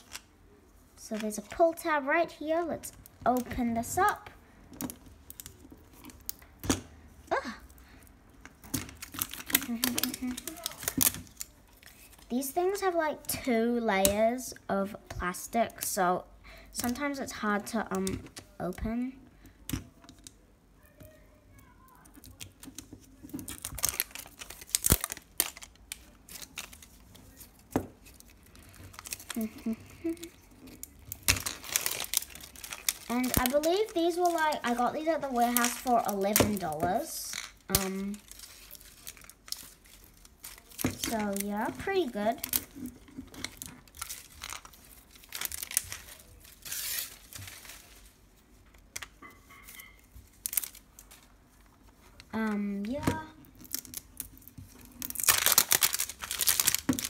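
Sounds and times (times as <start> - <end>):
plastic film crinkling and tearing: 0.0 - 0.3, 2.8 - 6.5, 8.6 - 13.0, 21.9 - 57.0
plastic film snap: 8.4 - 12.3, 22.1 - 29.5, 30.8 - 34.8, 35.4 - 47.9, 50.3 - 51.3, 52.9 - 57.0.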